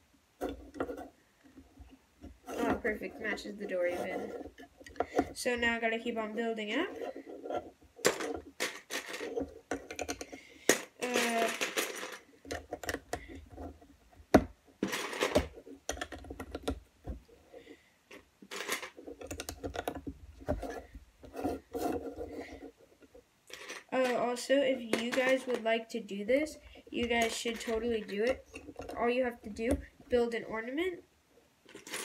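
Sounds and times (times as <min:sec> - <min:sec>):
plastic bricks clicking: 0:07.1 - 0:17.2, 0:18.1 - 0:25.7, 0:31.7 - 0:32.0.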